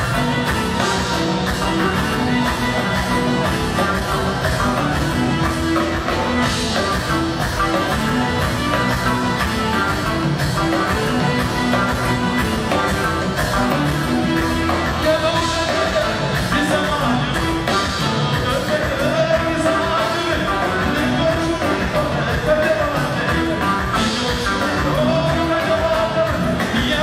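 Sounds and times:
live pop band playing: 0:00.0 - 0:27.0
man singing: 0:13.8 - 0:27.0.

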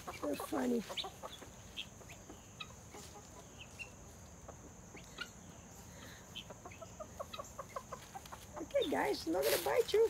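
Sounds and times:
guinea fowl chirps and clucks: 0:00.0 - 0:10.0.

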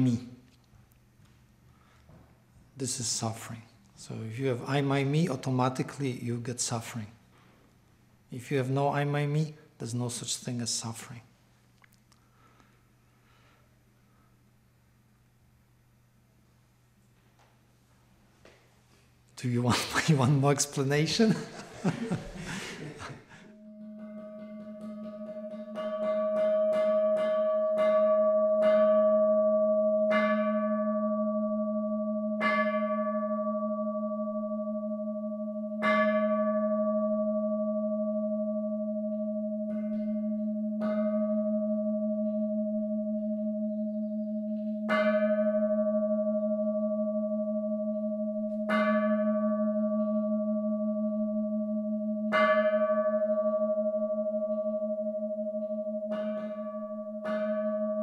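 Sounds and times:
struck bells ringing: 0:20.1 - 0:58.0.

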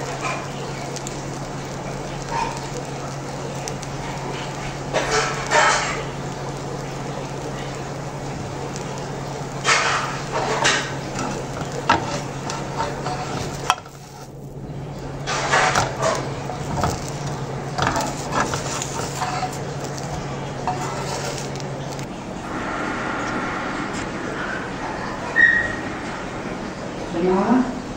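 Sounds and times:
metal spatula scraping a griddle: 0:04.9 - 0:06.1, 0:09.6 - 0:14.4, 0:15.2 - 0:21.6
low hum: 0:10.9 - 0:27.9.

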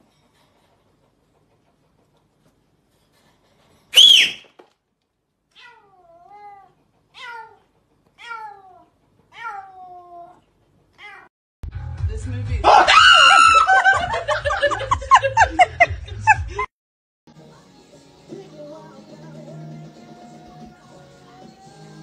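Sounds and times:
cat meowing: 0:05.6 - 0:07.6, 0:08.2 - 0:10.4, 0:11.0 - 0:11.3
shrill cry: 0:12.6 - 0:13.8.

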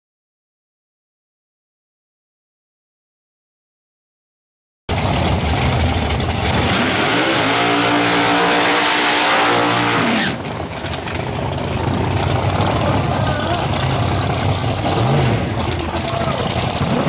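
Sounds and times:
car engine revving: 0:04.9 - 0:17.0.

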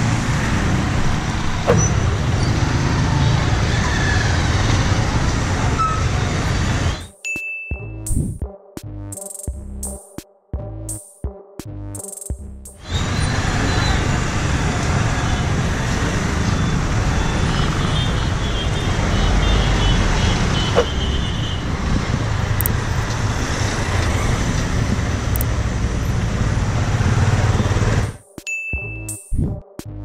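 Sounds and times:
city traffic: 0:00.0 - 0:08.4, 0:11.7 - 0:30.0
short falling squeal: 0:12.8 - 0:14.2
motorcycle engine at low speed: 0:22.7 - 0:28.2.

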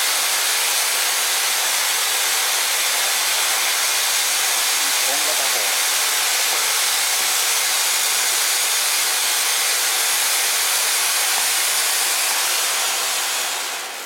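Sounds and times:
firework fountain hissing: 0:00.0 - 0:14.0.

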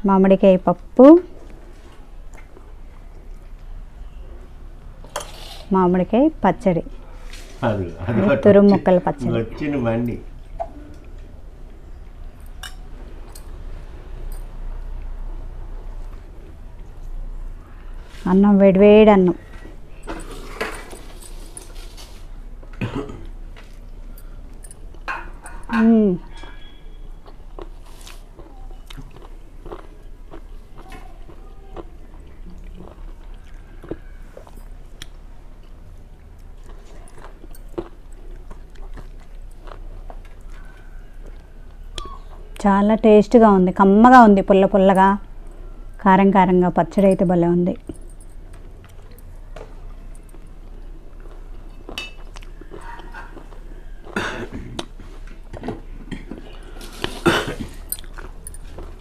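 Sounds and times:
chewing noises: 0:01.3 - 0:04.5, 0:27.2 - 0:42.6, 0:47.7 - 0:59.0.

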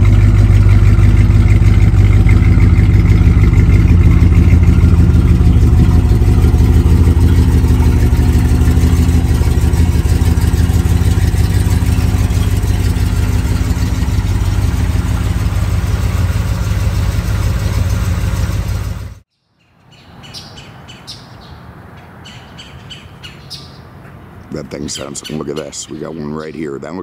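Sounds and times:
car engine running loud: 0:00.0 - 0:19.2
birds chirping: 0:00.0 - 0:27.0.

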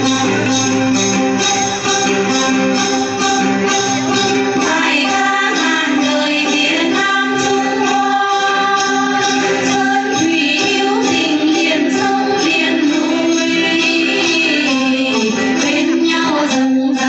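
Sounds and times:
plucked lutes: 0:00.0 - 0:17.0
steady jingling beat: 0:00.0 - 0:17.0
women singing together: 0:04.6 - 0:17.0.

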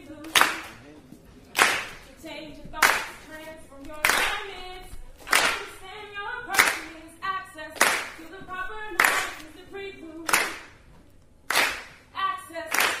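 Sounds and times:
sharp hand claps: 0:00.2 - 0:00.8, 0:01.5 - 0:02.1, 0:02.8 - 0:03.2, 0:04.0 - 0:04.4, 0:05.2 - 0:05.7, 0:06.6 - 0:06.9, 0:07.8 - 0:08.2, 0:09.0 - 0:09.5, 0:10.2 - 0:10.8, 0:11.5 - 0:12.0, 0:12.7 - 0:13.0.

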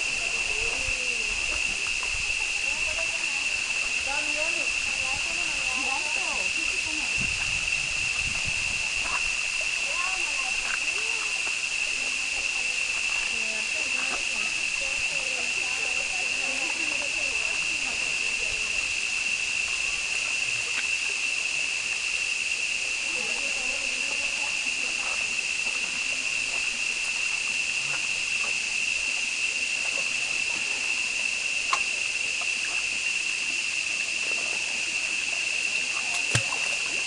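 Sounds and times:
insects droning: 0:00.0 - 0:37.0.

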